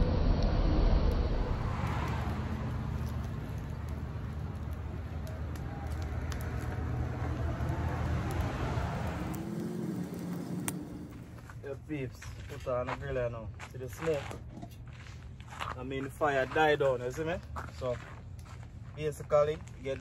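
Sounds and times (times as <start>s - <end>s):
low rumble: 0.0s - 13.7s
campfire crackling: 1.4s - 20.0s.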